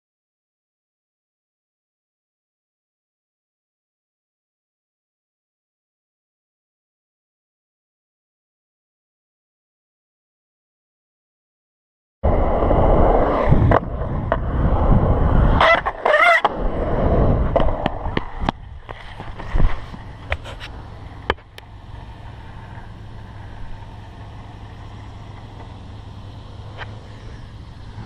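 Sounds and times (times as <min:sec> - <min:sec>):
skateboard wheels rolling on concrete: 0:12.2 - 0:28.0
steady low hum: 0:12.2 - 0:28.0
skateboard clacks and knocks: 0:15.6 - 0:16.5.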